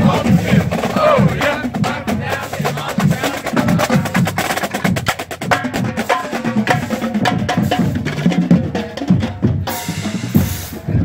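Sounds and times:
marching drumline cadence: 0:00.0 - 0:11.0.

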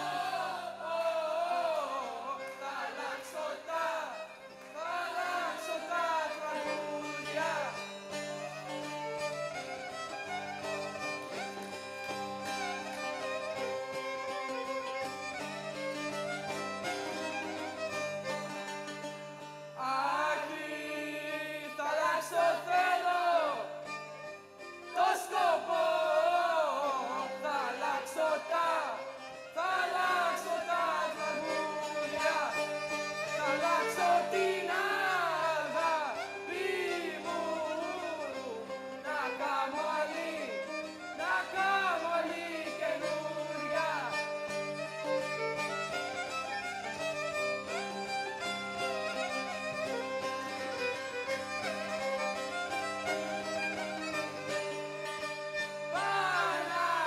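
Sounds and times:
violin folk melody: 0:00.0 - 0:57.0.

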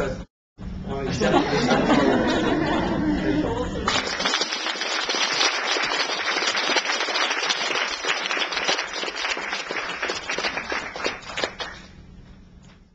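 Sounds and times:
small audience clapping: 0:03.9 - 0:12.0.

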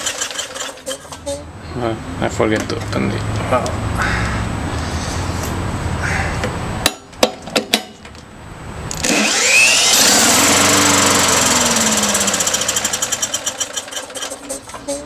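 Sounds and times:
engine firing in uneven pulses: 0:08.9 - 0:14.3
power drill whine: 0:08.9 - 0:14.4.

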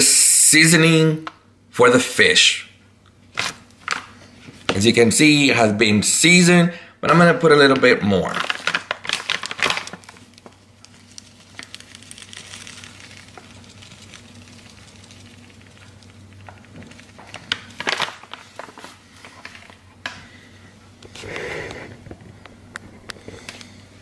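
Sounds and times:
bag crinkling and rustling: 0:07.6 - 0:21.4.

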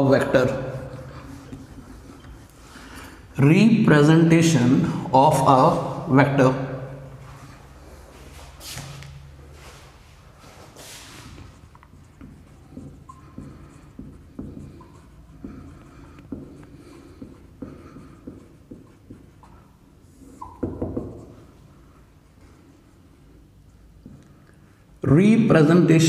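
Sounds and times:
marker writing on whiteboard: 0:07.2 - 0:24.8
marker squeaks: 0:11.2 - 0:21.5.

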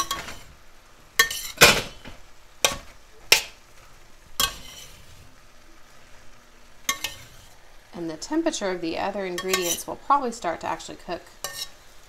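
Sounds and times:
metal spatula scraping a wok: 0:00.0 - 0:00.5, 0:01.2 - 0:03.6, 0:04.4 - 0:05.3, 0:06.9 - 0:07.6, 0:09.3 - 0:10.0, 0:11.4 - 0:12.0
vegetables sizzling: 0:00.0 - 0:12.0.

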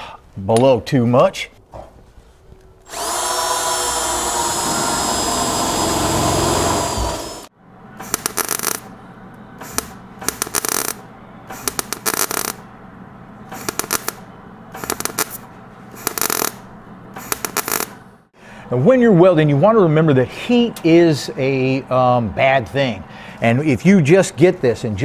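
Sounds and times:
electric drill whining: 0:02.8 - 0:07.5
welder crackling: 0:02.8 - 0:08.9, 0:09.6 - 0:12.6, 0:13.5 - 0:14.2, 0:14.8 - 0:15.4, 0:16.0 - 0:16.6, 0:17.2 - 0:18.0.

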